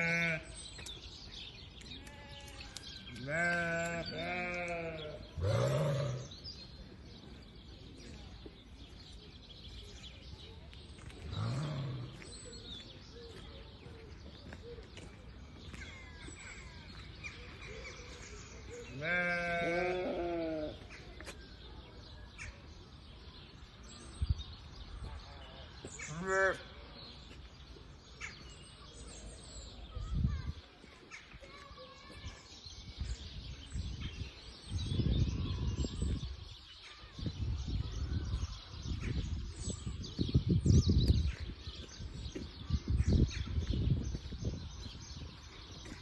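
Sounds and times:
sheep bleating: 0.0 - 0.4, 2.0 - 6.2, 19.0 - 20.7.

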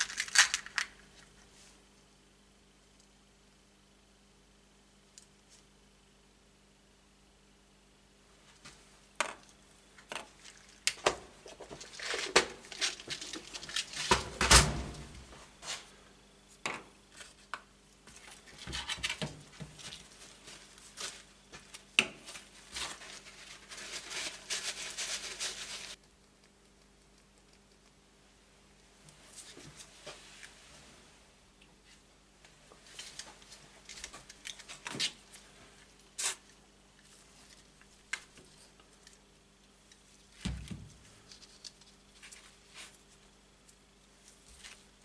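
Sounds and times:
rag and paper towels rustling: 22.3 - 26.0.

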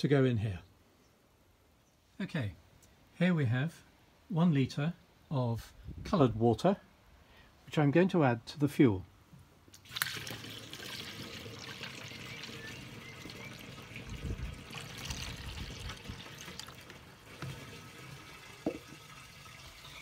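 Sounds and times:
water trickling through funnel: 9.7 - 20.0.

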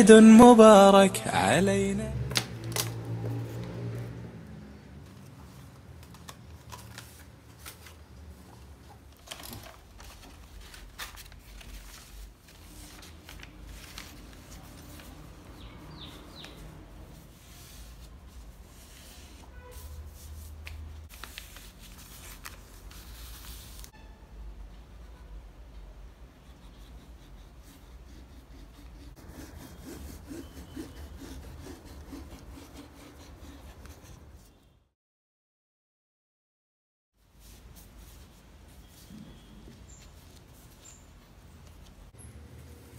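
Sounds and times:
paper rustling and crinkling: 5.1 - 23.9.

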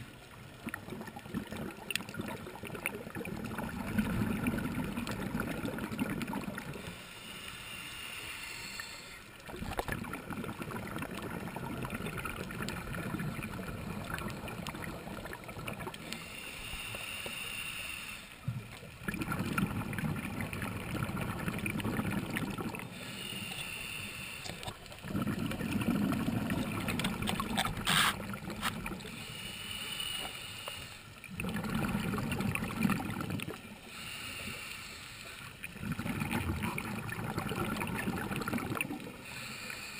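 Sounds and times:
exhaled bubbles rumbling: 0.0 - 6.8, 9.4 - 16.2, 18.4 - 22.9, 24.6 - 29.1, 31.2 - 33.8, 35.6 - 39.2
regulator hissing inhale: 6.8 - 9.4, 16.0 - 18.4, 22.9 - 24.8, 29.1 - 31.2, 33.8 - 35.7, 39.2 - 39.9.

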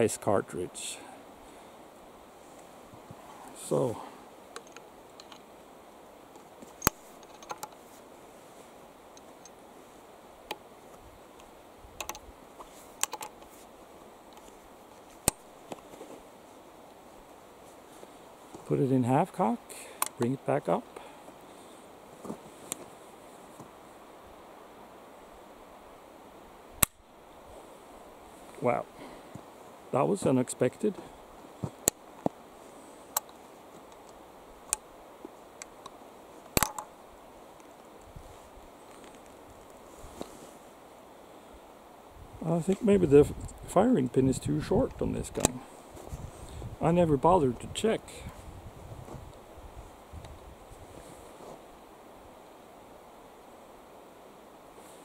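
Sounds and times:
rifle hammer and breech clicks: 6.8 - 7.8, 11.4 - 12.2, 13.0 - 13.5, 35.6 - 36.9
rifle action metallic clicks: 36.6 - 36.9.

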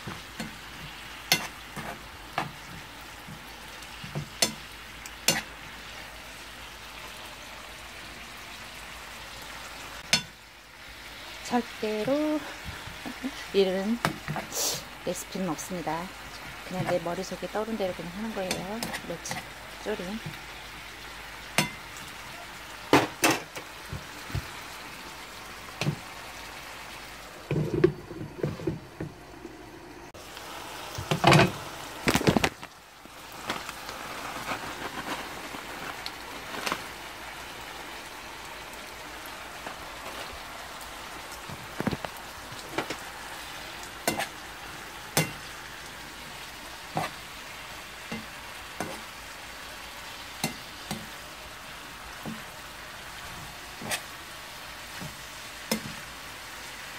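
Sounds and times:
sauce sizzling in a frying pan: 0.0 - 56.9.

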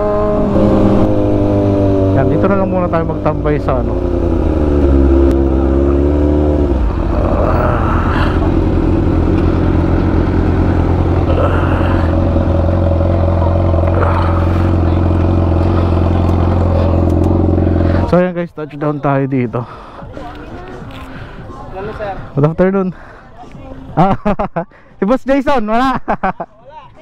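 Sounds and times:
motorcycle engine winding down and idling: 0.0 - 18.1.

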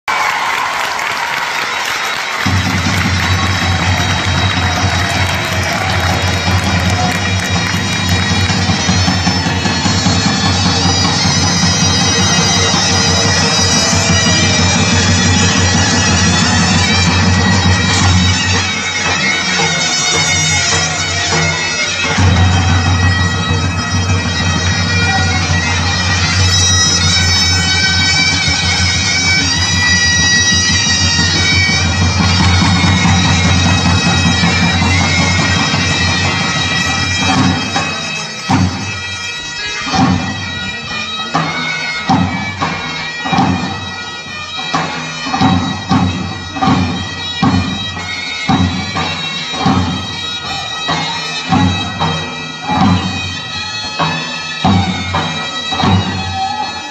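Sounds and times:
bagpipe music: 0.1 - 56.9
regular drum beat: 2.4 - 25.5.

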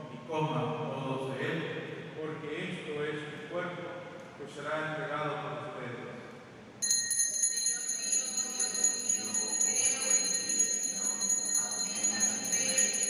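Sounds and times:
small bells jingling: 6.8 - 13.0.

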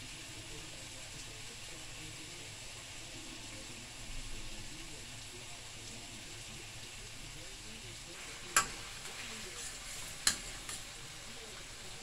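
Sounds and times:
vegetables sizzling in a pan: 0.0 - 12.0
spoon knocking against pan: 8.5 - 8.8, 10.2 - 10.8
metal spoon stirring: 8.5 - 11.0.

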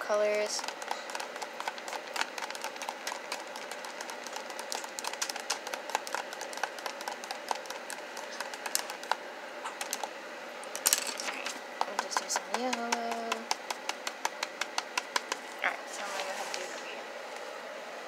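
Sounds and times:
pencils tapping on paper: 0.3 - 9.2, 9.8 - 10.1, 10.9 - 15.5.

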